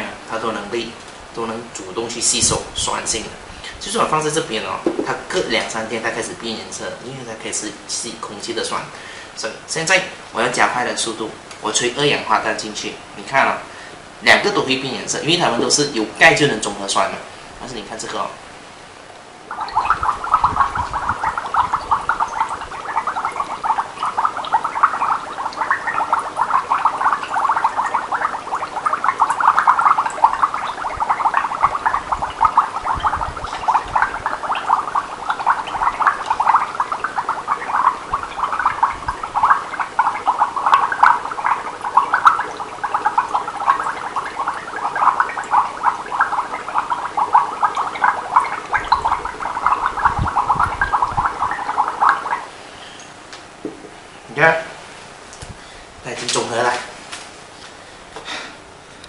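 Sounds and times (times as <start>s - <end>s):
breath bubbling through straw in water: 19.5s - 53.0s.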